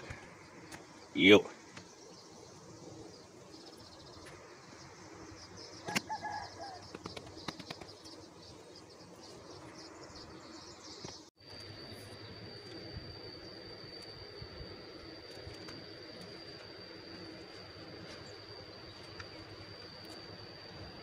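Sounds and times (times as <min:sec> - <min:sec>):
birds calling: 0:00.0 - 0:11.3
high insect-like hiss: 0:00.0 - 0:21.0
steady high whine: 0:00.0 - 0:21.0.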